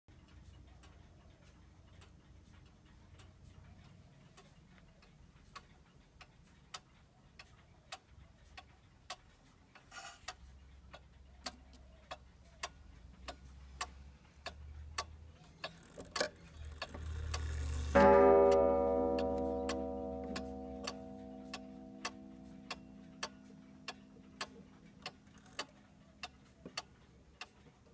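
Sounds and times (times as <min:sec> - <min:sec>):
pendulum clock ticking: 0:00.1 - 0:27.9
clock strike ringing: 0:17.6 - 0:25.4.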